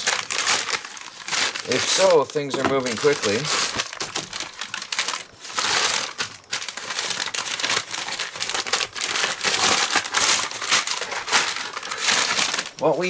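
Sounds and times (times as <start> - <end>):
padded mailers crinkling: 0.0 - 13.0.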